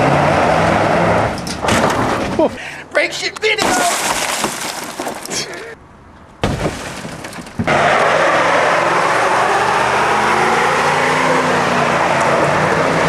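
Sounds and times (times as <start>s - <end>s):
truck engine revving high: 0.0s - 1.4s, 7.7s - 13.0s
tyres spinning on gravel: 3.2s - 5.8s
car window glass breaking: 3.6s - 5.3s, 6.4s - 7.7s.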